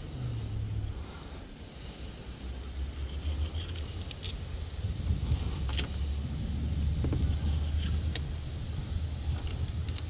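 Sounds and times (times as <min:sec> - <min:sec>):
wind buffeting microphone: 0:03.8 - 0:10.0.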